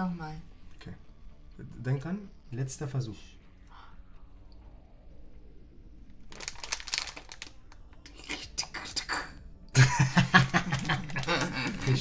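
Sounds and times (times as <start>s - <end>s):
plastic packet crinkling: 6.3s - 7.8s, 10.5s - 12.0s.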